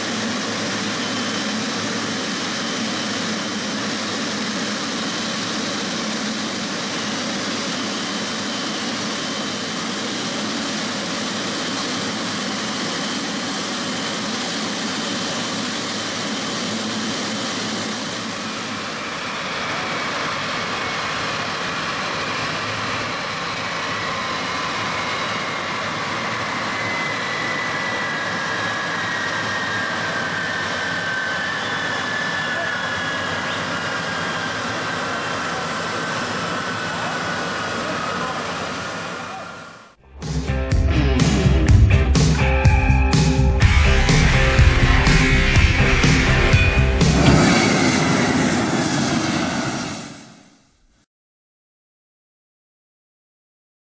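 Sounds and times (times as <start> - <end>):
jet turbine rushing hum: 0.0 - 40.0, 42.8 - 50.7
whine falling in pitch: 42.5 - 50.6.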